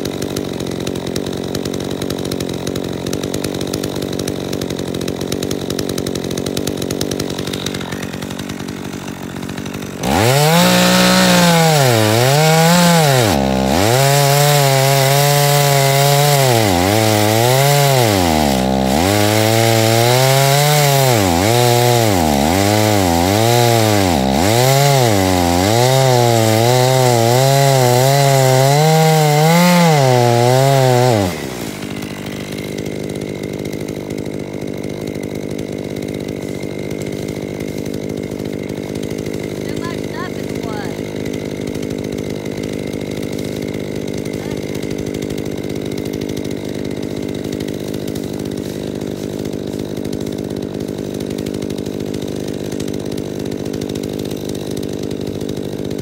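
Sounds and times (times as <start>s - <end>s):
chainsaw cutting a log: 0.0s - 56.0s.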